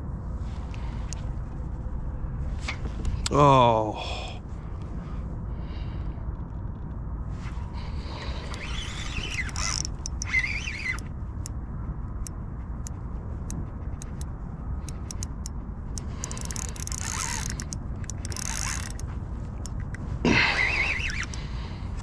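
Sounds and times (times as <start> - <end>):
wind rumble on microphone: 0.0 - 22.0
rustling scrapes: 7.3 - 11.1
light mechanical clicks: 8.3 - 11.6, 12.2 - 20.0, 20.6 - 22.0.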